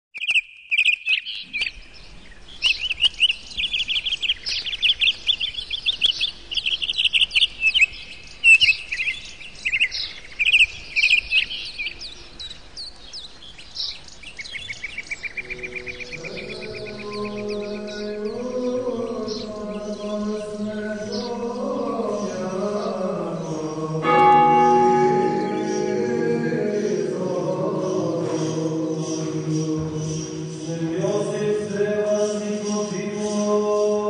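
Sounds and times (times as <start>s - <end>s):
birds chirping and trilling: 0.2s - 34.0s
faint sustained music notes: 15.3s - 33.4s.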